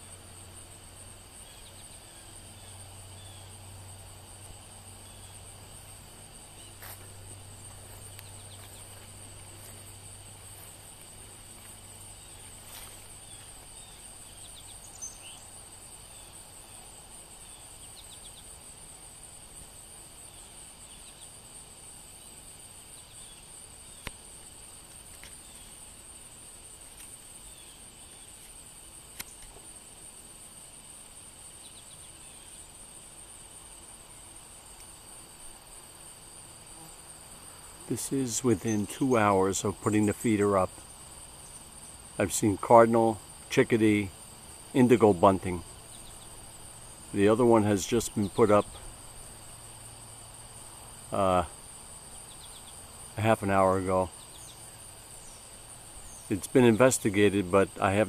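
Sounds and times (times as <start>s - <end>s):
crickets chirping: 0.0s - 58.0s.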